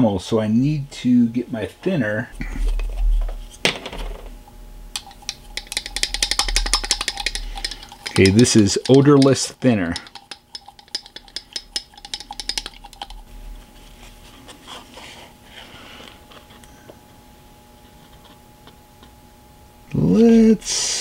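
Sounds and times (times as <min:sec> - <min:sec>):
faint steady hum: 0:00.0 - 0:21.0
small objects clicking and clattering: 0:05.0 - 0:13.3
faint taps and scraping: 0:05.0 - 0:15.2, 0:17.8 - 0:19.2.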